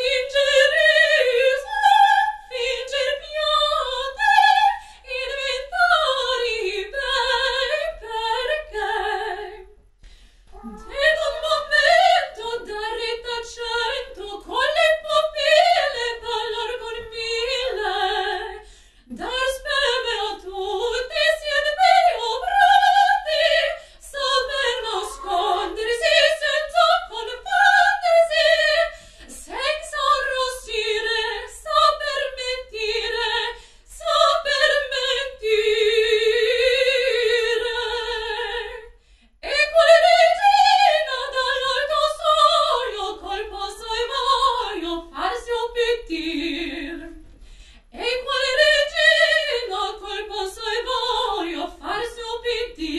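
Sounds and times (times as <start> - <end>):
woman singing operatically: 10.5 - 38.8.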